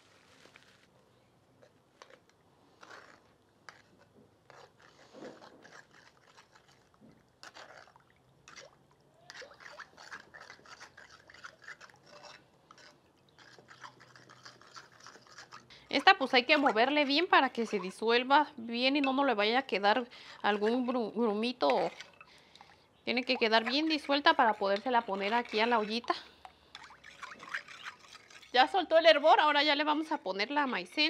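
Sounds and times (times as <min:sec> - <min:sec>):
spoon scraping and tapping: 0:18.9 - 0:19.3.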